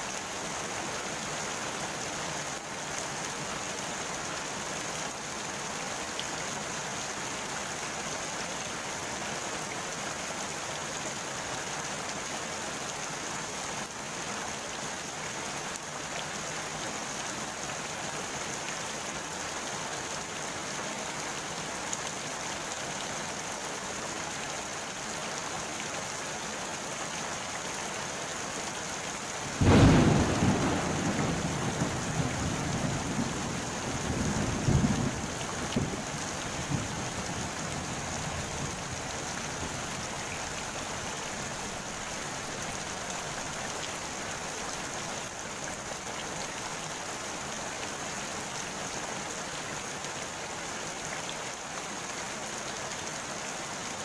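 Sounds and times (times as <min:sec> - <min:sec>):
rain falling on a pond: 0:00.0 - 0:54.0
thunder clap rumbling: 0:29.6 - 0:38.1.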